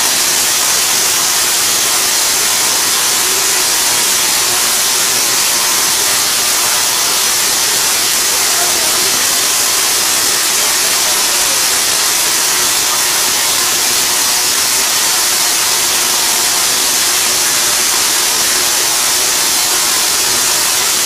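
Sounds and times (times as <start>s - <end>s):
tesla coil buzzing: 0.0s - 21.0s.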